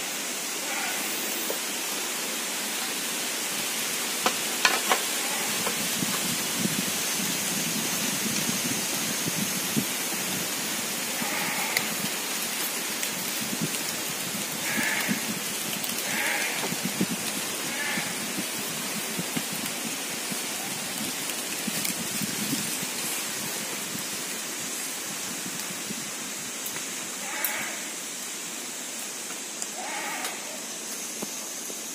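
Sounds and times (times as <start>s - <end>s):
outdoor hiss with crackling: 0.0s - 31.9s.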